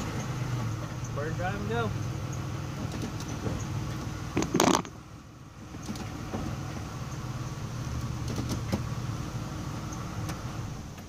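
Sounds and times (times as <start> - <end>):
car engine idling: 0.0 - 11.0
gear selector clunk and rattle: 2.3 - 5.0, 5.7 - 6.8, 8.0 - 8.9.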